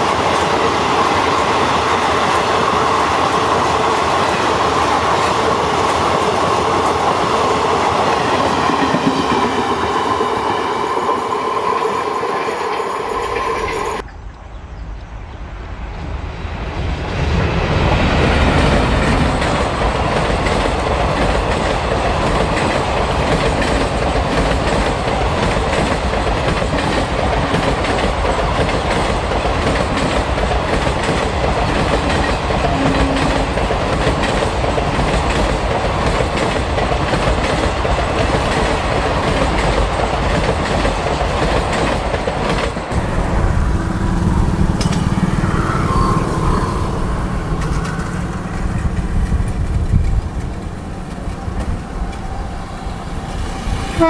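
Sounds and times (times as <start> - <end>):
train rumbling past: 0.0 - 14.1, 15.2 - 54.0
distant train: 0.0 - 54.0
wheels clattering over rails: 18.7 - 53.3.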